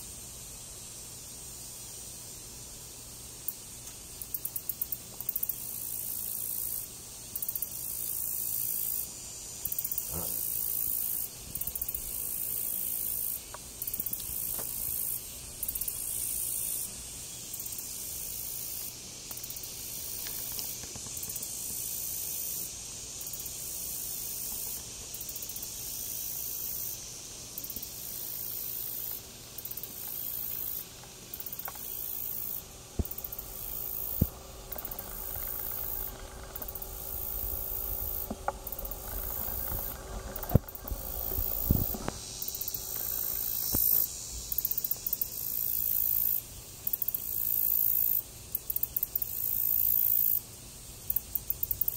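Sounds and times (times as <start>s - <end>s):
high-pitched insect chorus: 0.0s - 51.9s
faint clicks: 33.0s - 44.1s.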